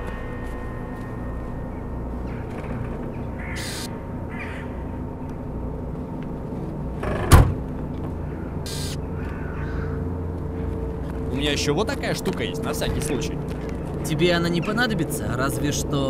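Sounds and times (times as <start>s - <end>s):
low outdoor drone: 0.0s - 16.0s
crows cawing: 2.2s - 5.3s, 8.0s - 10.8s
car trunk lid slammed shut: 7.2s - 7.6s.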